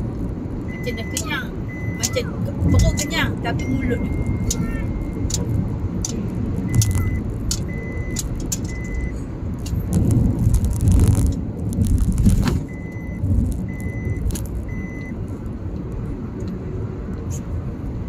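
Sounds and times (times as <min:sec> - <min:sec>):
car road and engine rumble: 0:00.0 - 0:18.0
dashboard warning chime beeps: 0:00.7 - 0:09.2, 0:12.7 - 0:15.2
light rattling clicks: 0:05.3 - 0:09.0
rush of noise: 0:09.1 - 0:14.7.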